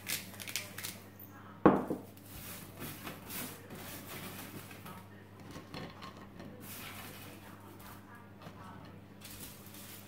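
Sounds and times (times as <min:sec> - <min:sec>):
parchment paper rustling: 0:00.0 - 0:01.1, 0:02.2 - 0:05.2, 0:06.5 - 0:10.0.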